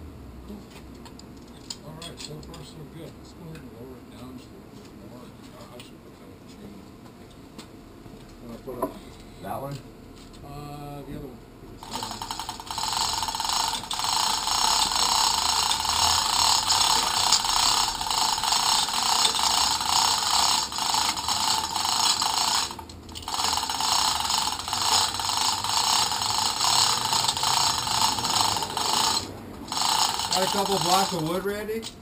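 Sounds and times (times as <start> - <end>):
chain hoist clicking: 11.8 - 32.0.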